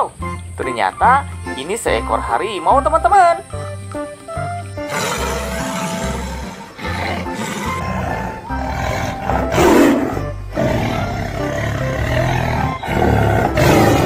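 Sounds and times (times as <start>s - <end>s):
background music: 0.0s - 14.0s
tiger roaring: 4.8s - 14.0s.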